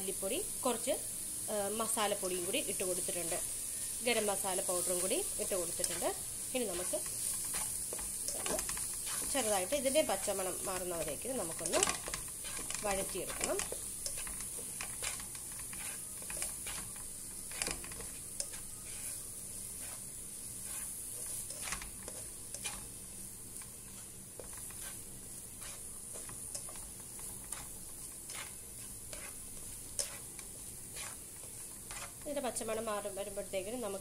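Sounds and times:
masala sizzling in a pot: 0:00.0 - 0:34.0
spatula scraping a pot: 0:05.6 - 0:22.9, 0:23.8 - 0:32.3.

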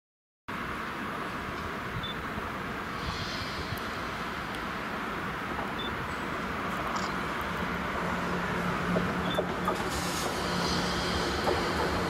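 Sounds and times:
train wheels rumbling: 0:02.4 - 0:12.0.

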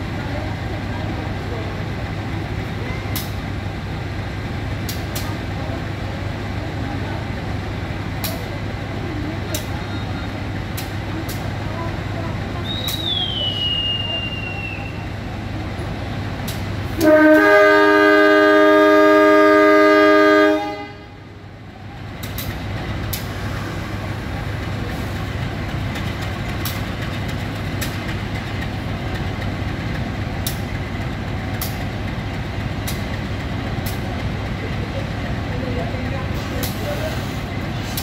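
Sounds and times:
locomotive engine rumbling: 0:00.0 - 0:38.0
locomotive air horn blast: 0:17.0 - 0:21.2
sharp clicks: 0:22.2 - 0:23.3.

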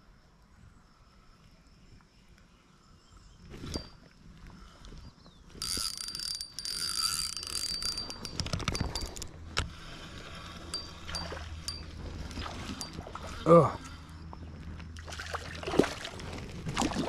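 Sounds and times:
fishing reel whirring and clicking: 0:03.7 - 0:04.0, 0:05.5 - 0:13.1.

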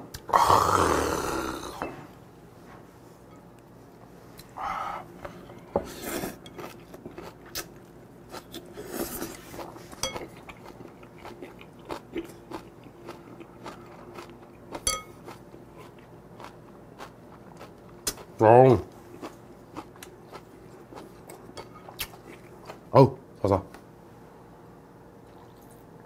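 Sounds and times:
person chewing crunchy food: 0:05.9 - 0:22.9.

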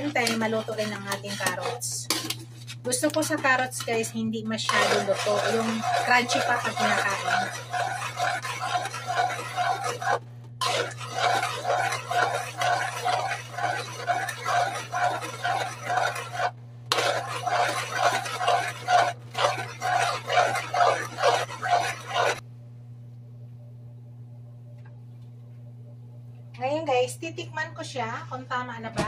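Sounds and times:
metal spoon scraping a wok: 0:00.0 - 0:04.0, 0:04.6 - 0:22.4.

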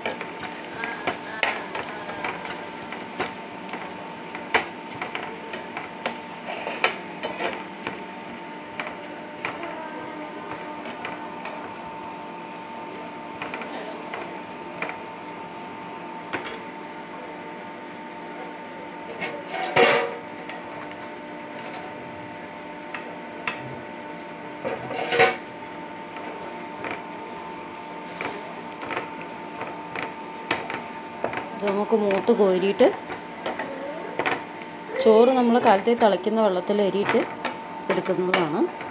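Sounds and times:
onions frying: 0:00.0 - 0:16.6.

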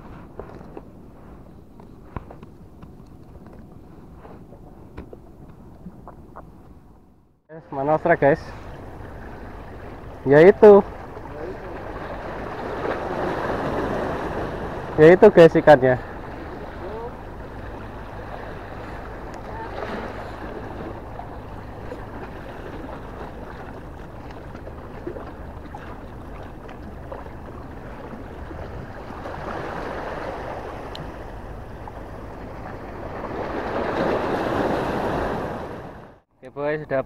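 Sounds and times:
wind rumbling on microphone: 0:00.0 - 0:07.2, 0:08.2 - 0:36.2
sea water washing against rocks: 0:08.2 - 0:36.2.

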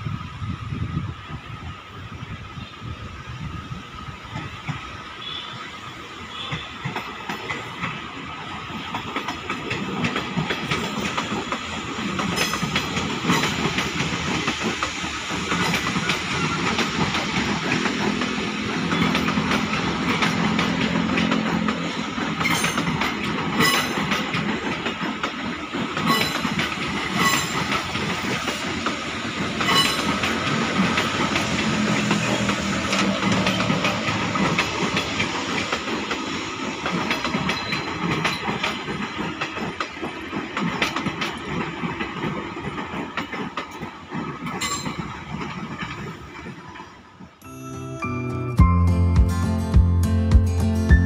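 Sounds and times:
electric train passing: 0:00.0 - 0:51.0
wheels clicking over rail joints: 0:06.3 - 0:47.4.

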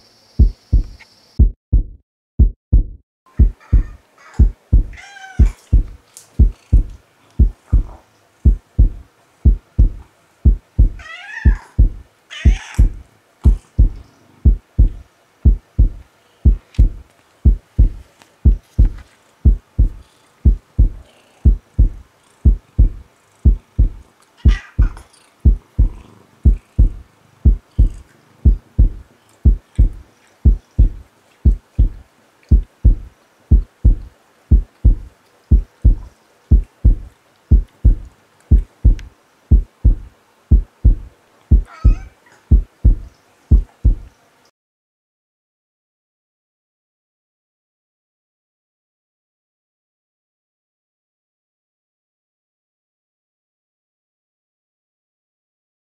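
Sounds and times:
heartbeat thumps: 0:00.4 - 0:44.1
cat meowing: 0:03.4 - 0:05.8, 0:10.9 - 0:13.0, 0:24.4 - 0:25.1, 0:41.6 - 0:42.4.

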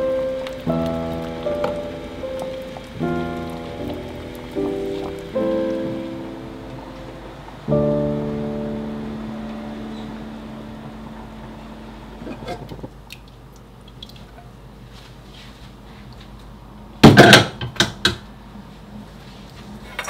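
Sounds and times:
piano note: 0:00.0 - 0:12.9.

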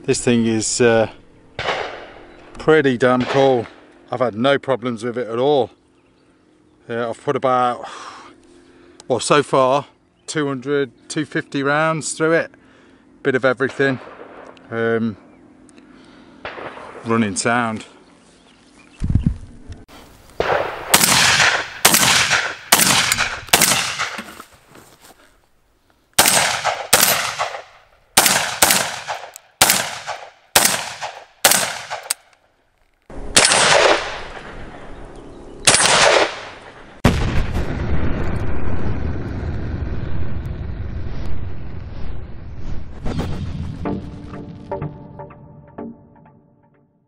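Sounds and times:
shotgun shots: 0:01.6 - 0:02.2, 0:03.1 - 0:03.8, 0:13.7 - 0:14.6, 0:16.4 - 0:17.2, 0:20.4 - 0:24.4, 0:26.2 - 0:32.3, 0:33.3 - 0:34.8, 0:35.6 - 0:37.7
music: 0:43.7 - 0:47.0.

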